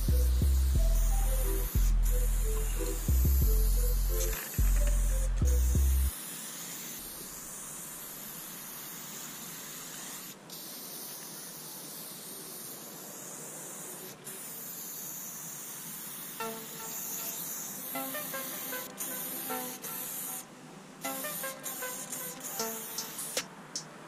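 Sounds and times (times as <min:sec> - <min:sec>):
music notes: 0:00.0 - 0:06.1
spray paint can hissing: 0:00.0 - 0:23.9.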